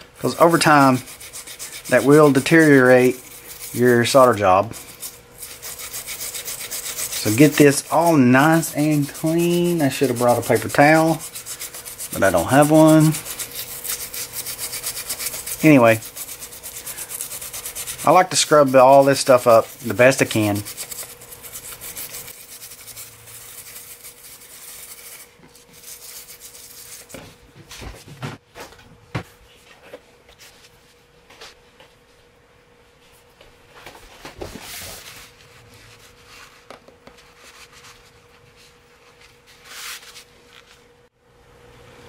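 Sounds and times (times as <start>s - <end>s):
faint steady hum: 0.0s - 42.0s
toothbrush scrubbing: 0.2s - 27.2s.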